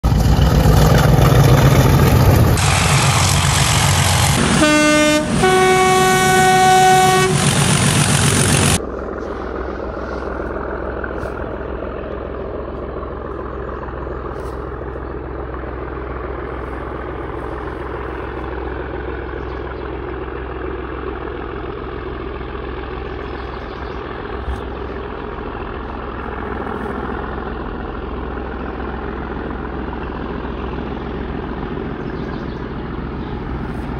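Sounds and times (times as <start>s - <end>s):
diesel locomotives working hard: 0.0s - 33.9s
distant diesel locomotive rumble: 0.0s - 33.9s
two-tone horn blast: 4.4s - 7.9s.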